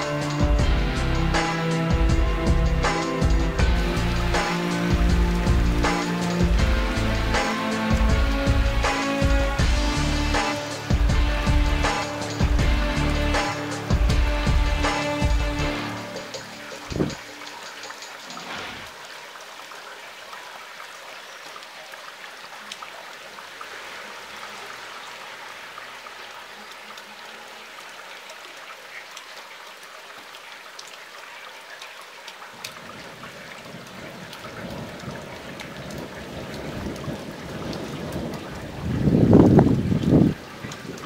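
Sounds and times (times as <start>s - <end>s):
raindrops ticking near microphone: 0.0s - 41.0s
steady rain: 0.0s - 41.0s
low thunder rumble: 34.0s - 40.5s.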